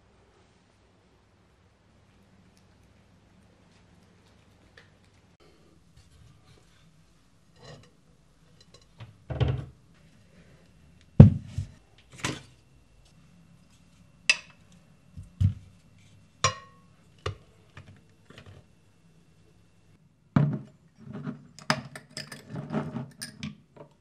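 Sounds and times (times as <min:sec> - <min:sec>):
dishes knocking and clinking: 0:16.4 - 0:18.4.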